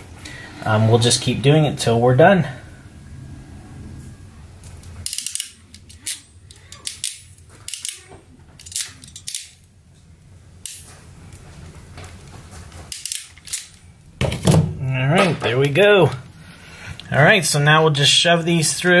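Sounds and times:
hand crimping tool clicking: 4.8 - 9.6, 12.9 - 13.8.

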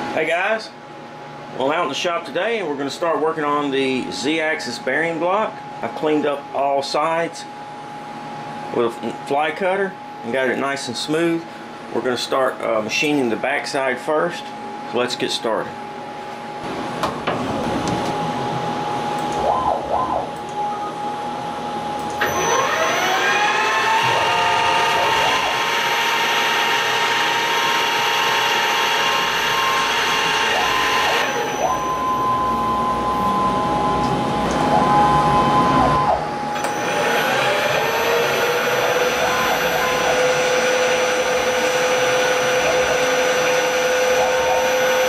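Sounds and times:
spindle whine: 16.5 - 45.0
stepper motors whining: 22.1 - 45.0
end mill cutting metal: 22.2 - 31.7, 36.6 - 45.0.

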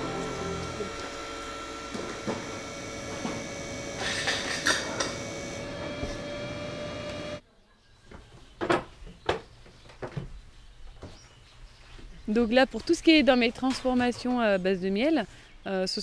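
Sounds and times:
machine whirring: 0.0 - 7.4.

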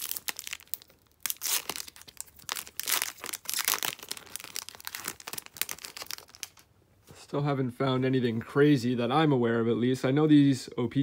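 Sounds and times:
foil wrapper tearing and crinkling: 0.0 - 6.6.

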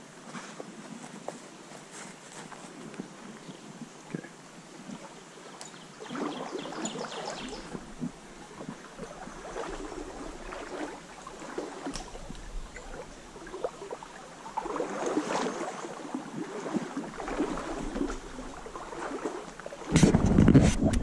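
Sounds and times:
creek rippling over riffle: 1.8 - 21.0
wind rumble on microphone: 11.9 - 13.5, 19.8 - 21.0.

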